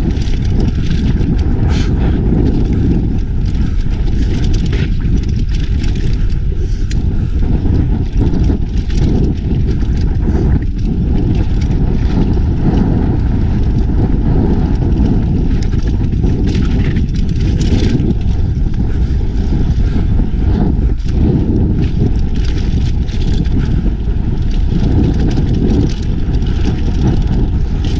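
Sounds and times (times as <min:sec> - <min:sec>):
bike tyres rolling on dirt: 0:00.0 - 0:27.9
wind on microphone: 0:00.0 - 0:27.9.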